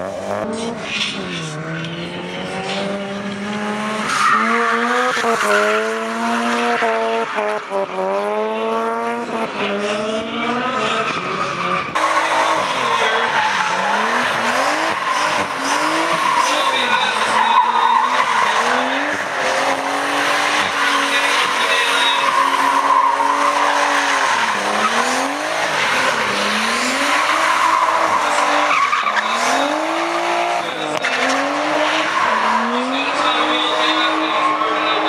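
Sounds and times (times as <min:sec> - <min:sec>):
car engine revving: 0:00.0 - 0:35.0
tyres squealing: 0:04.0 - 0:05.9, 0:11.0 - 0:35.0.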